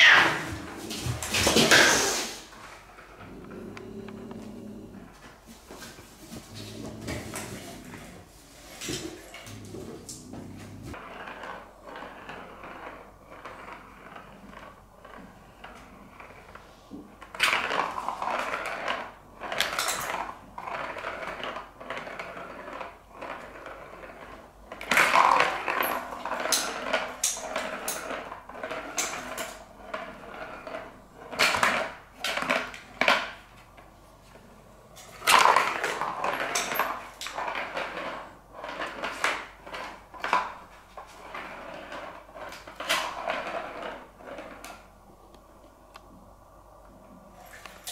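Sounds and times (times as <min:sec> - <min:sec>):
ball rattling around plastic track: 0:10.9 - 0:33.9, 0:35.0 - 0:45.0.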